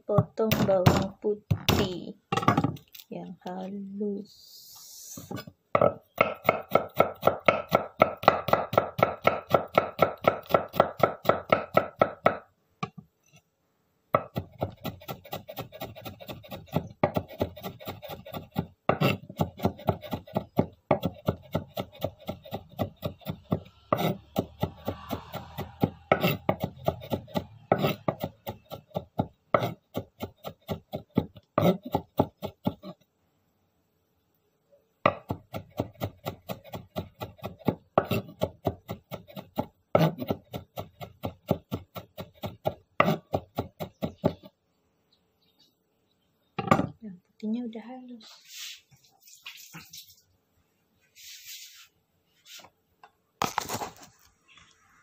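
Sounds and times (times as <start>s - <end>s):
knife chopping on cutting board: 5.8s - 12.4s, 14.2s - 33.0s, 35.1s - 44.5s.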